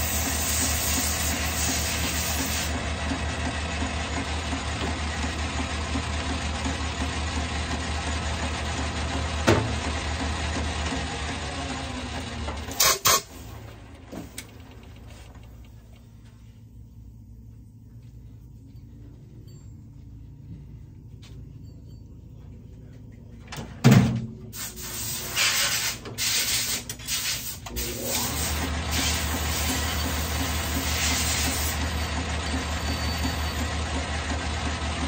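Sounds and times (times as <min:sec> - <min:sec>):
lathe motor hum: 0:00.0 - 0:12.7, 0:27.7 - 0:35.0.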